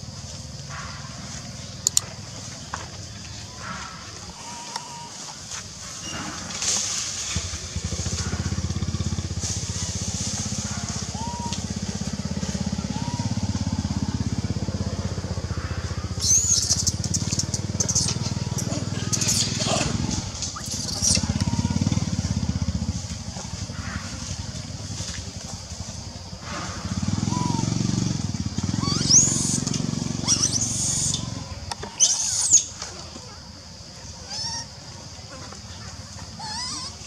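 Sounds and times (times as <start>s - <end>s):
motorcycle engine idling low: 0.0s - 32.0s.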